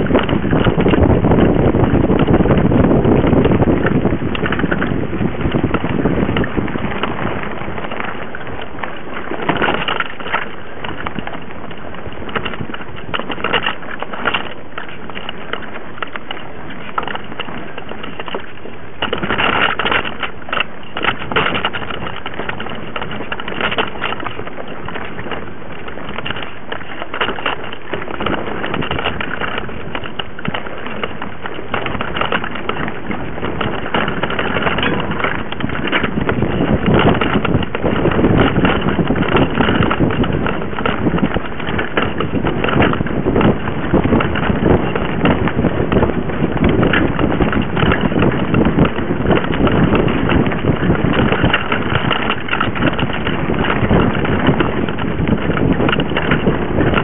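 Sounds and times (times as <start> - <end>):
bike tyres rattling on dirt: 0.0 - 57.0
wind on microphone: 0.0 - 57.0.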